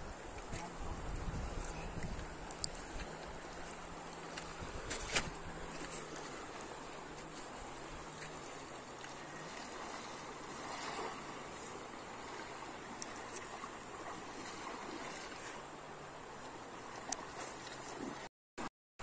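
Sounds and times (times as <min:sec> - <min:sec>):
river rushing: 0:05.6 - 0:18.2
cast net slapping water: 0:09.1 - 0:15.6.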